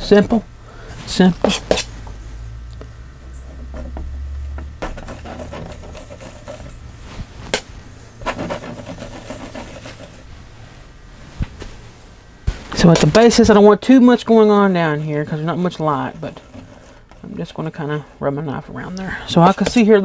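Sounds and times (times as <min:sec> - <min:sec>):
painting knife scraping palette: 0:01.4 - 0:01.9, 0:03.2 - 0:07.1, 0:08.2 - 0:10.3, 0:14.3 - 0:20.0.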